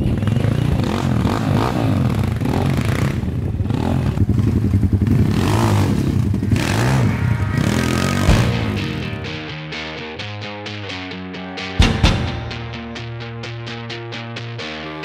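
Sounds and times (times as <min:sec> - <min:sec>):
motorcycle engine revving: 0:00.0 - 0:09.5.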